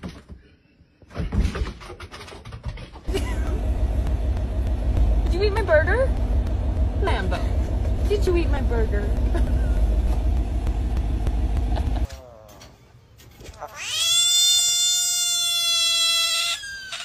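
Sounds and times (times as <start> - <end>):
car engine rumbling: 3.1 - 12.1
frog wailing scream: 13.7 - 17.0.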